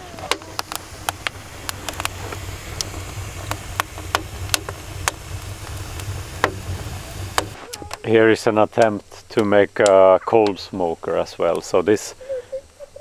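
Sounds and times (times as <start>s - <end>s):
low steady rumble: 0.0s - 9.8s
wood fire crackling and popping: 0.0s - 12.8s.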